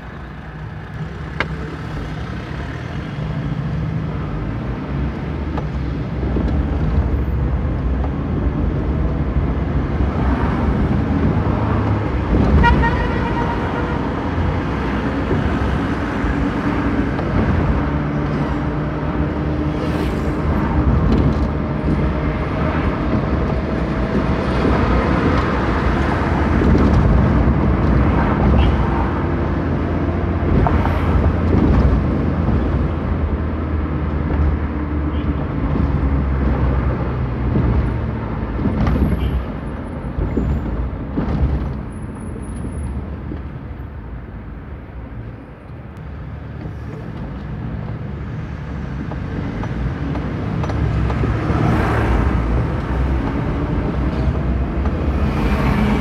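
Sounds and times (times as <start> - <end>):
car engine and road rumble: 0.0 - 56.0
car horn toot: 12.6 - 14.1.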